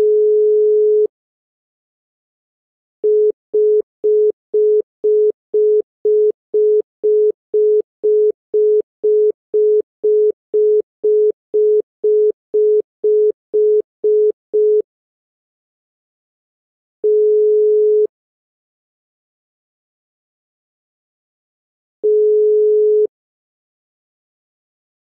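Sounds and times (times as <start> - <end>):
telephone busy tone beeping: 0.0 - 1.1, 3.0 - 14.8, 17.0 - 18.1, 22.0 - 23.1.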